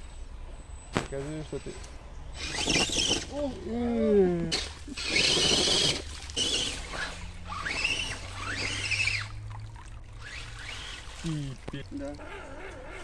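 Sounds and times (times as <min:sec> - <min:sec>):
electric motor whining: 0:01.5 - 0:09.4, 0:10.2 - 0:13.0
water splashing: 0:04.5 - 0:13.0.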